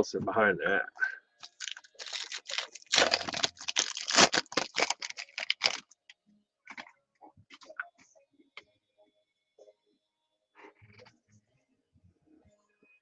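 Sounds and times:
foil wrapper crinkling and tearing: 1.4s - 6.0s.

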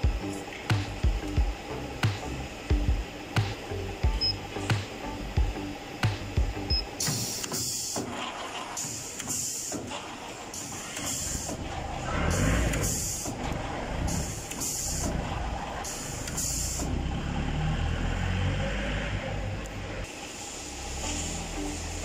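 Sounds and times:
compressed air hiss: 4.6s - 18.6s, 20.0s - 22.0s
feed rollers rumbling: 7.2s - 20.1s.

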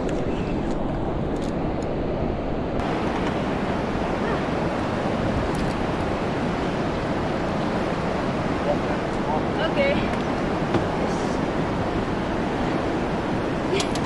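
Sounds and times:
wind buffeting microphone: 0.0s - 14.0s
turbulent river water rushing: 2.8s - 14.0s.

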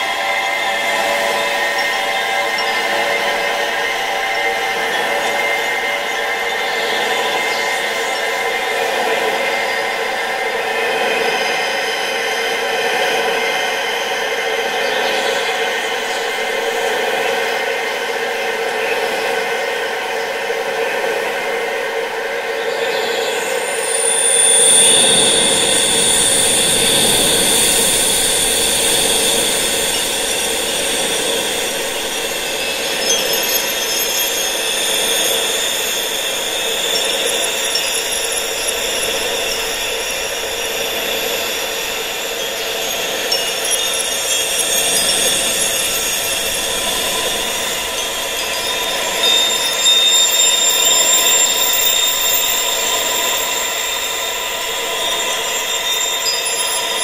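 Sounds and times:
faint high whistle: 0.0s - 18.0s, 22.4s - 57.0s
high-pitched wind hiss: 0.0s - 57.0s
sustained high ringing tones: 0.0s - 57.0s
wind blowing: 23.5s - 49.8s.

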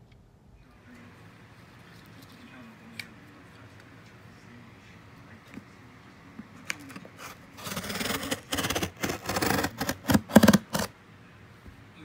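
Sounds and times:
scissors cutting packing tape: 7.6s - 10.9s.

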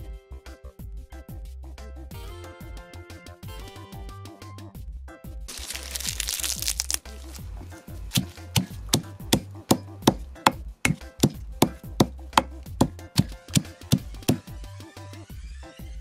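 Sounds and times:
pestle pounding in stone mortar: 8.1s - 14.5s.

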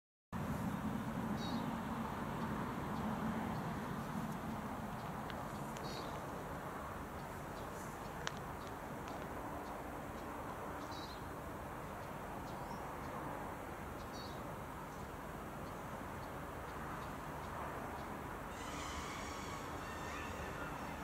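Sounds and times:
outdoor background hiss: 0.4s - 21.0s
bird chirps: 18.5s - 21.0s
bright hiss: 18.5s - 21.0s.

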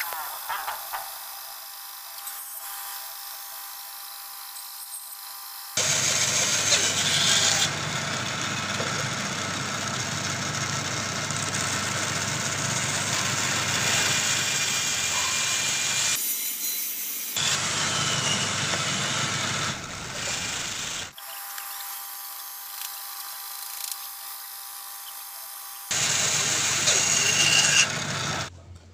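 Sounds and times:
bandsaw cutting wood: 5.4s - 28.5s.

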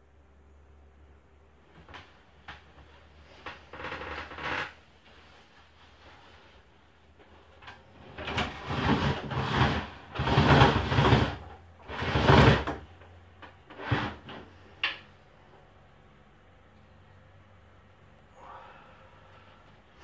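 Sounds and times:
sliding window scraping in track: 1.8s - 14.7s.

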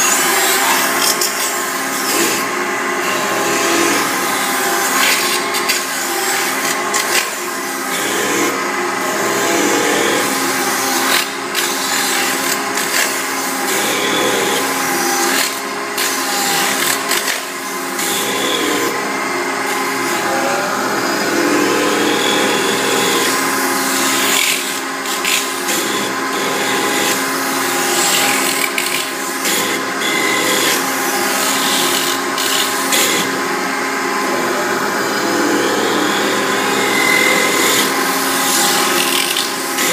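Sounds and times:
machine hum with held tones: 18.0s - 27.2s.

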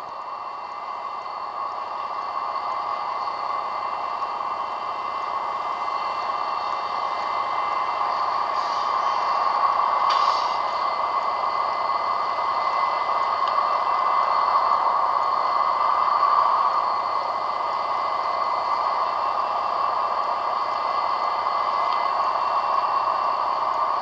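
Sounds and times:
steady hiss: 0.5s - 17.0s.

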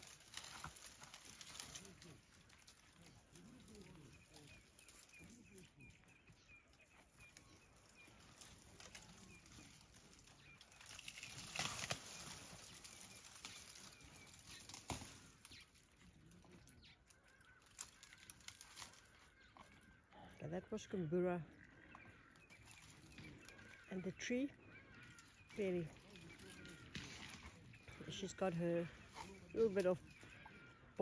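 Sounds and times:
elephant rustling branches: 0.0s - 19.9s, 22.3s - 23.9s, 24.8s - 31.0s
small bird chirping: 20.9s - 31.0s.

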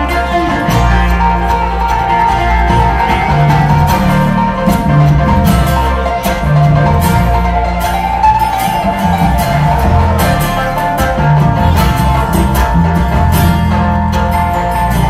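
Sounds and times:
acoustic guitar picking: 0.0s - 15.0s
banjo picking: 0.0s - 15.0s
mandolin: 0.0s - 15.0s
upright bass notes: 0.0s - 15.0s.

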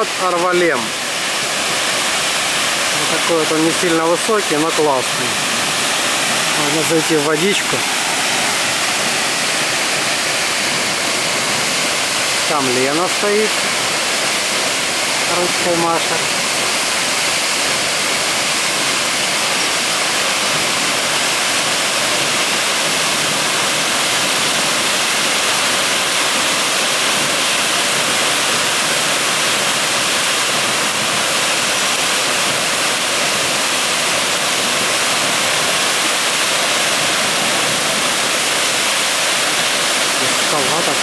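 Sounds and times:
waterfall rushing: 0.0s - 41.0s.

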